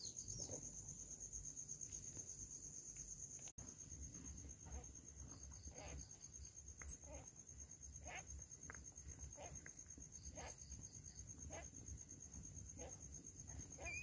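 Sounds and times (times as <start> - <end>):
cat and kittens soft sounds: 4.1 - 14.0.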